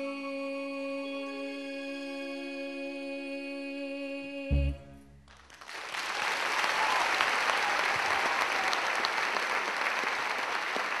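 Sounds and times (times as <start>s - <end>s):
audience applause: 5.3s - 11.0s.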